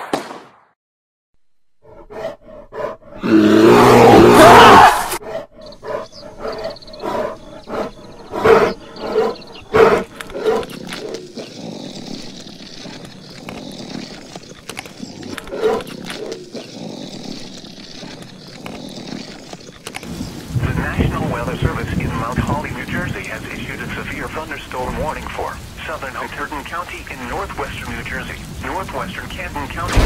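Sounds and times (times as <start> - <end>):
bear growling and grunting: 1.8 - 20.1.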